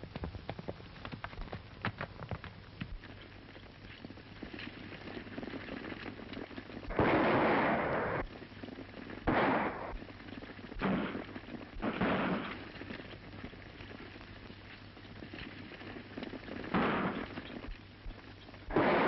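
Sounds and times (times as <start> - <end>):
galloping horses: 0.0 - 19.0
gunshots with rough tail: 6.9 - 8.4, 9.2 - 12.8, 16.5 - 17.8, 18.7 - 19.0.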